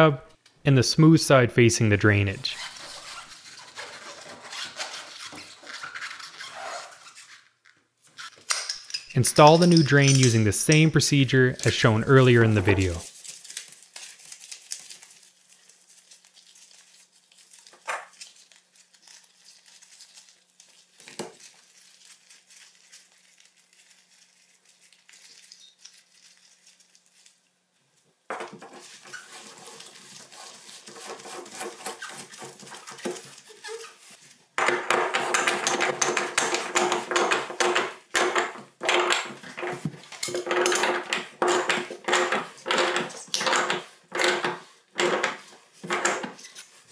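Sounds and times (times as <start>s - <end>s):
metal tools clinking and scraping: 8.2s - 13.1s, 35.1s - 46.7s.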